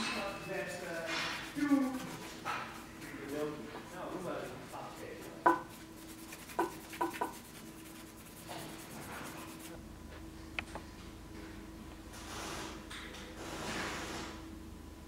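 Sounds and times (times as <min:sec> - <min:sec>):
light rubbing: 0:00.0 - 0:09.8
faint steady hum: 0:00.0 - 0:15.0.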